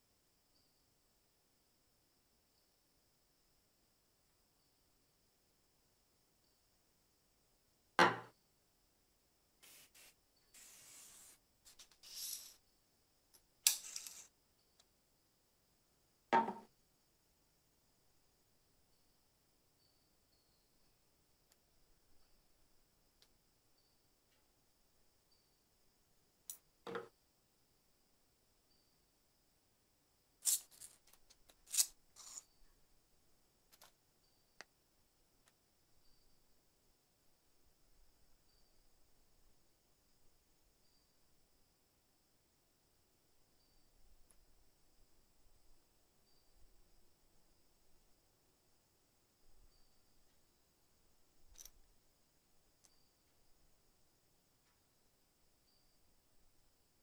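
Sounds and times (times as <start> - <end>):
items knocking on wooden table: 8.0 - 8.3, 16.4 - 16.7, 26.9 - 27.1
rustling and sliding: 9.6 - 12.6.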